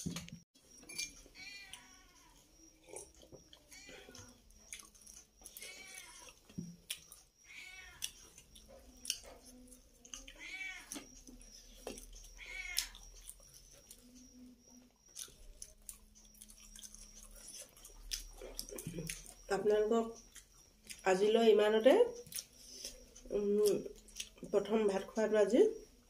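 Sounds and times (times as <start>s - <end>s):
cat meowing: 7.5s - 8.0s, 10.4s - 10.9s, 12.4s - 12.9s.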